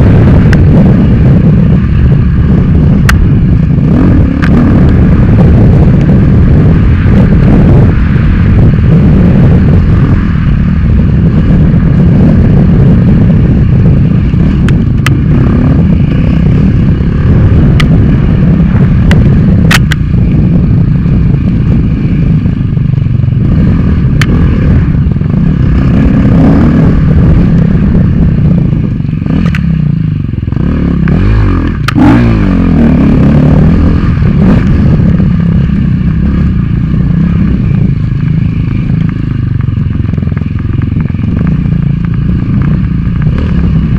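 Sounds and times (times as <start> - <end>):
dirt bike engine revving: 0.0 - 22.6, 23.3 - 39.3
sharp clicks and knocks: 19.0 - 20.1, 29.4 - 29.7.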